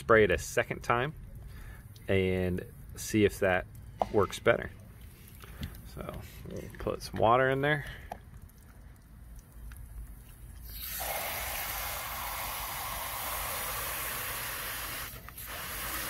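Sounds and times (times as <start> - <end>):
hose water spraying into container: 9.5 - 16.0.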